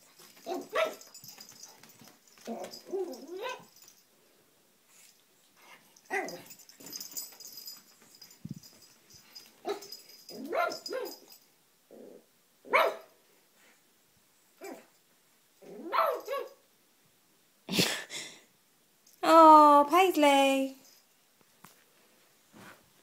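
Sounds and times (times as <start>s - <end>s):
puppy barking: 0.4s - 1.8s, 2.5s - 3.7s, 9.6s - 11.3s, 12.7s - 13.1s, 15.7s - 16.6s
puppy whining: 0.4s - 3.9s.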